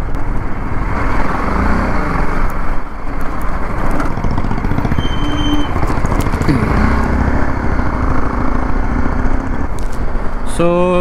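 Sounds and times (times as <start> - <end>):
motorcycle engine running: 3.1 - 10.3.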